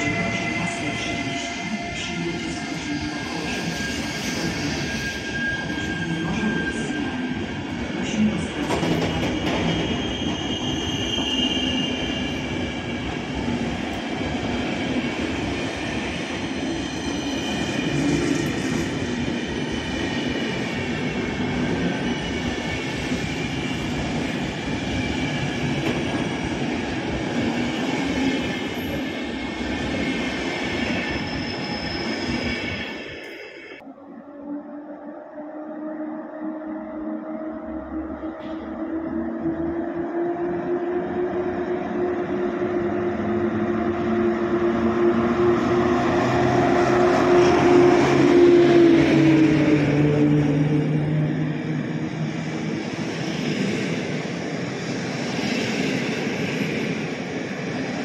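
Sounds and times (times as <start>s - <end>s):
train wheels rumbling on rails: 0.0s - 33.1s.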